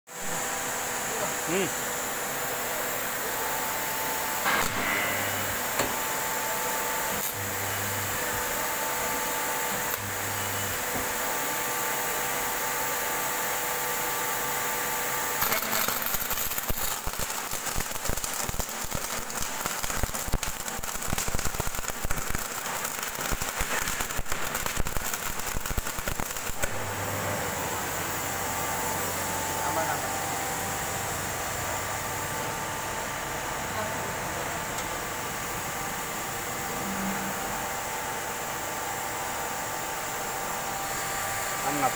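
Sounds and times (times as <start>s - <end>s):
welder humming: 0.2s - 41.9s
crackling of electric arcing: 4.4s - 10.9s, 14.4s - 27.1s.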